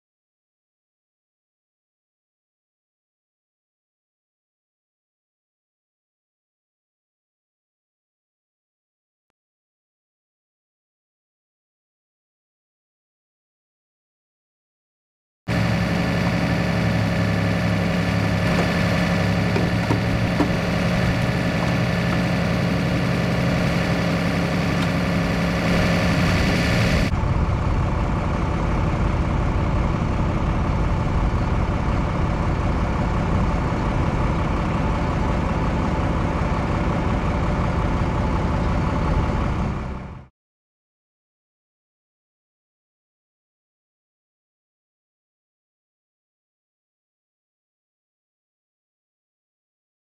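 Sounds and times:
engine idling: 15.5 - 40.3.

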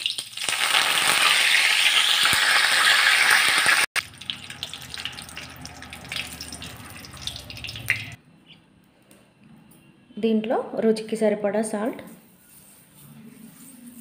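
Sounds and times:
leaves sizzling in hot oil: 0.0 - 8.2
oil popping: 3.5 - 8.2.

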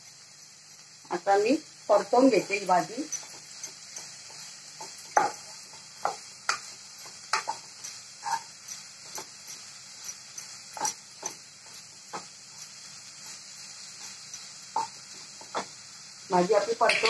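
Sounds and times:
wooden spatula scraping a pan: 2.2 - 15.7.

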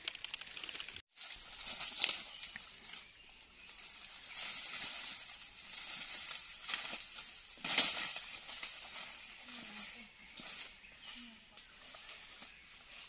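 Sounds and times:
footsteps crunching dry leaves: 1.1 - 10.1.

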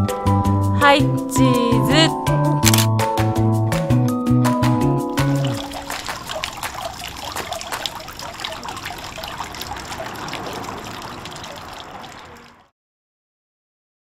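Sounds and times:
water bubbling from spout: 5.2 - 12.7.

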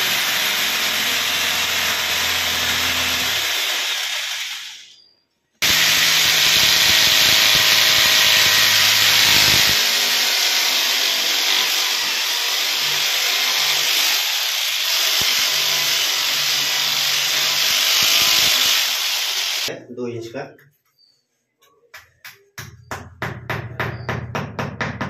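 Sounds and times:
hammer drill boring into tile: 0.0 - 5.0, 5.6 - 19.7.

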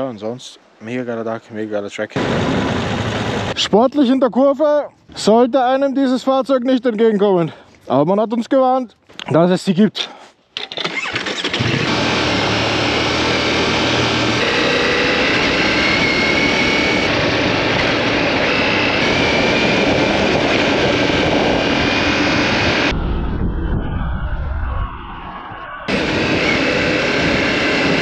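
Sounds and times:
motorcycle engine: 2.2 - 3.6, 10.6 - 23.0, 25.9 - 28.0
wind rushing over microphone: 14.0 - 28.0.

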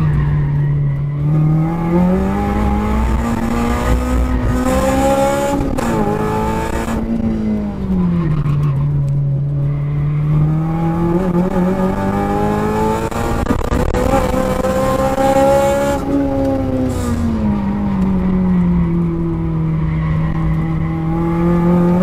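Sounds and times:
car engine revving from inside: 21.0 - 22.0.

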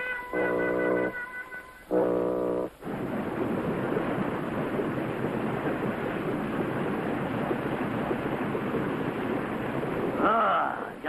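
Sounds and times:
steady rushing noise: 2.4 - 11.0.

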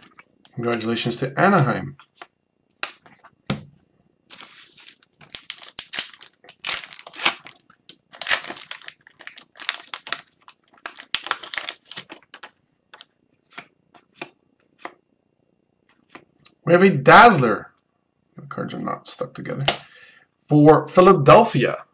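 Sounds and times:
foil wrapper crinkling: 4.3 - 13.7.

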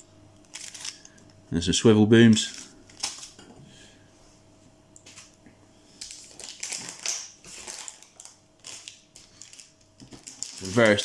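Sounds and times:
plastic packets crinkling: 0.5 - 1.2, 6.0 - 11.0.

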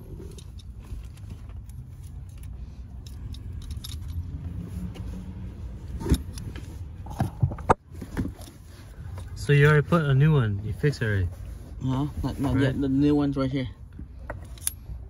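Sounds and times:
low steady rumble: 0.0 - 15.0
metal wrench clinking: 0.1 - 4.4, 14.4 - 15.0.

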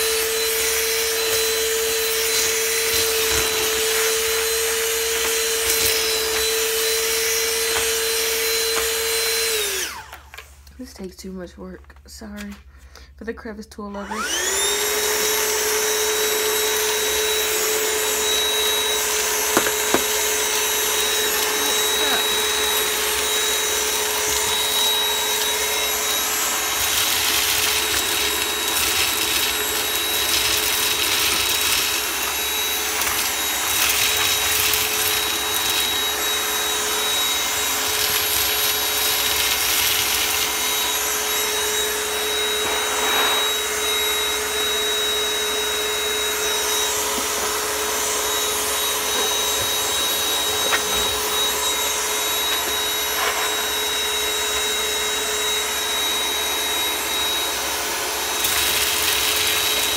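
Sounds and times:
vacuum cleaner whine: 0.0 - 11.0, 13.9 - 59.9
beans rattling in vacuum: 19.5 - 36.2.

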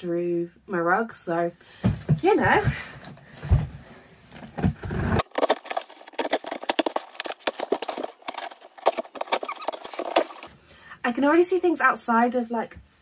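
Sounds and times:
scissors slitting packing tape: 5.2 - 10.5.

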